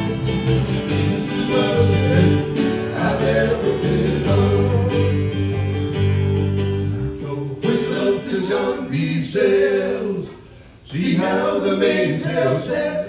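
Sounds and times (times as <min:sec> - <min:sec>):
voices singing unaccompanied: 0:00.0 - 0:05.6, 0:07.2 - 0:13.0
acoustic guitar and bass chord: 0:00.0 - 0:08.9.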